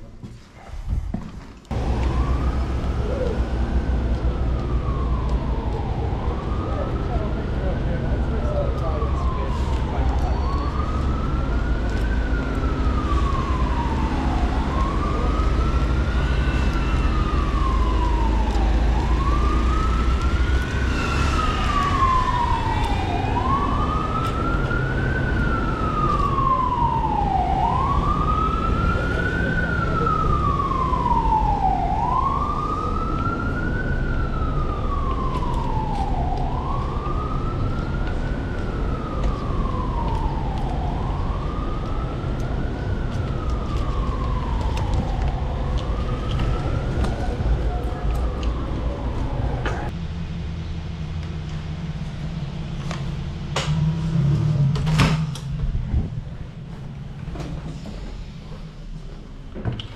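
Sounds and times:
siren wailing: 1.7s - 50.0s
low rumble: 43.3s - 59.6s.

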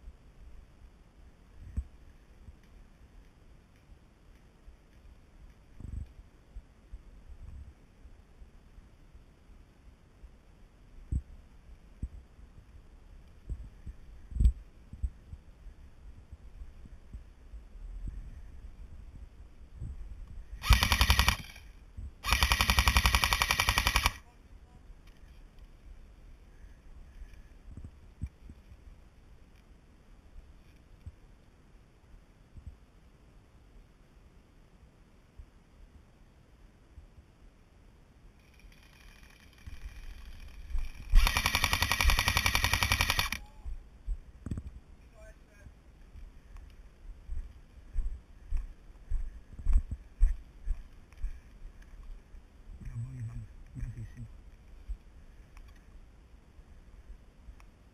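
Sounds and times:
airsoft gun full-auto bursts: 20.6s - 24.2s, 38.7s - 43.4s.

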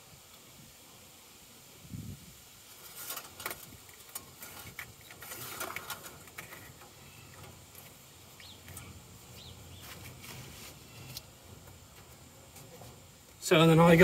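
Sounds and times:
hands handling engine parts: 2.7s - 13.4s
birds chirping: 4.5s - 14.0s.

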